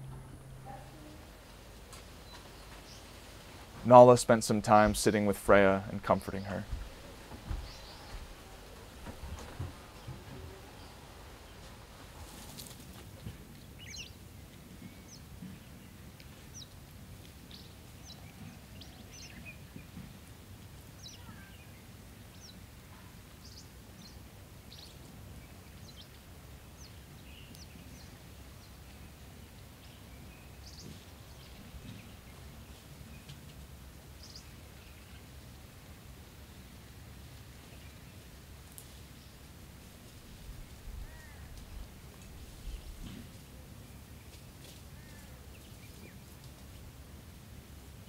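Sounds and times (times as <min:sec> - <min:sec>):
low background rumble: 0:00.0 - 0:12.3.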